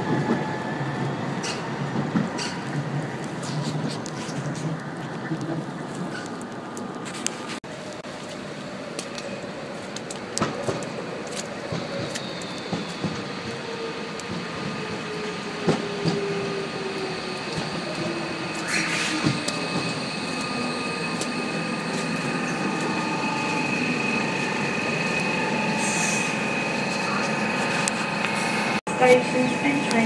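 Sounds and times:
train motor whine: 0:10.1 - 0:30.0
brake squeal: 0:11.8 - 0:14.1, 0:14.9 - 0:28.7
air hiss: 0:25.8 - 0:26.4.

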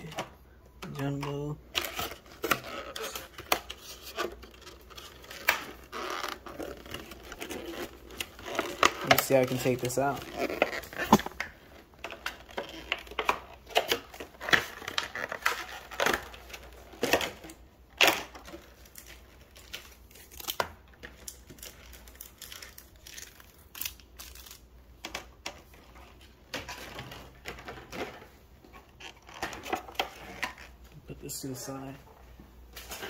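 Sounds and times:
plastic packaging crinkling: 0:01.7 - 0:25.0.

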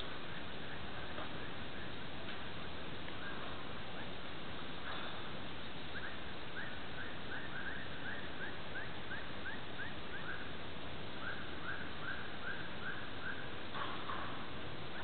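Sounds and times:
steady hiss: 0:00.0 - 0:15.0
bird chirping: 0:04.9 - 0:10.5.

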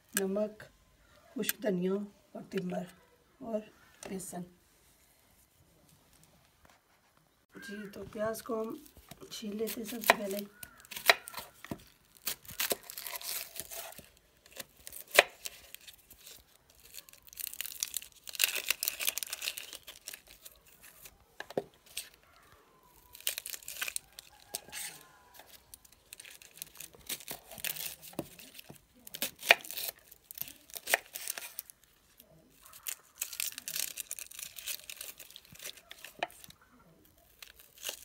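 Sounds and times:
onion skin tearing and crinkling: 0:07.9 - 0:38.0.

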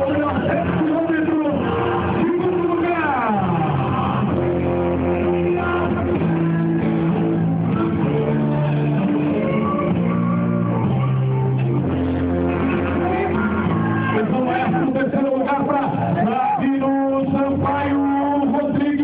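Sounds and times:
music with held notes: 0:00.0 - 0:19.0.

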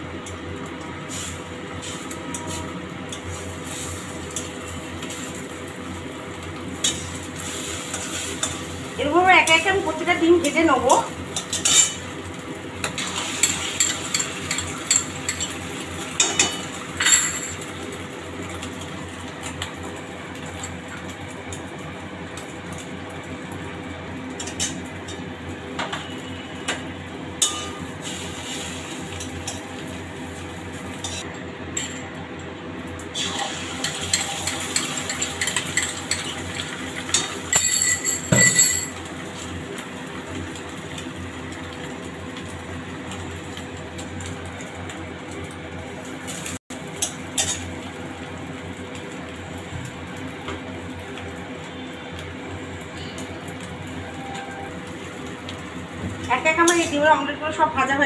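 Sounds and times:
omelettes sizzling in oil: 0:00.0 - 0:31.9, 0:32.8 - 0:58.0.

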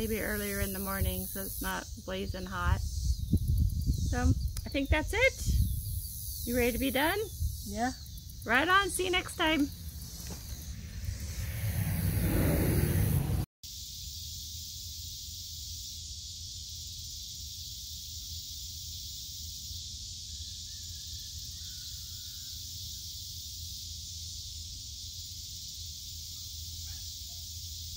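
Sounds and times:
insects chirring: 0:00.0 - 0:27.9
low rumble: 0:09.7 - 0:13.5.

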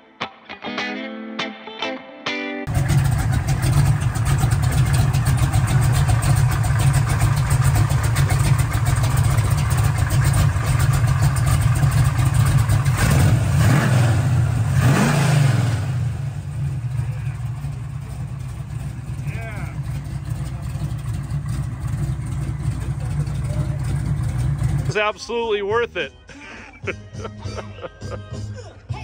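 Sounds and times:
car engine idling and revving: 0:02.7 - 0:26.1.

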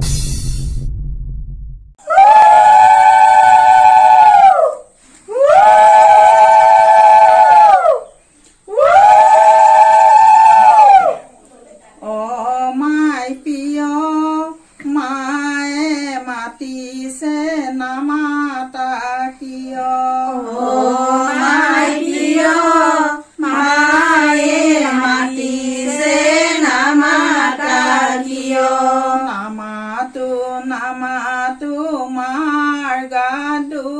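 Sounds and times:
woman singing unaccompanied: 0:12.0 - 0:33.9.

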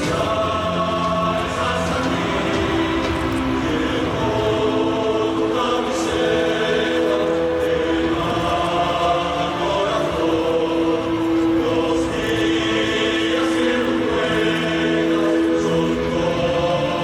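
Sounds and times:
crowd singing held notes: 0:00.0 - 0:17.0.

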